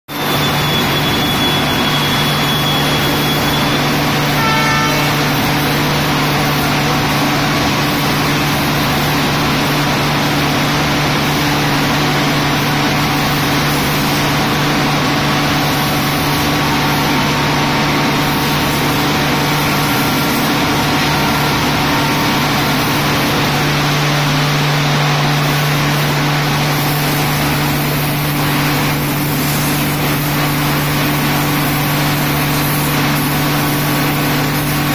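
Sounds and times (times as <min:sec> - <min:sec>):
high-pressure water jet hissing: 0:00.2 - 0:34.9
low machine hum: 0:00.2 - 0:34.9
short toot: 0:04.4 - 0:05.4.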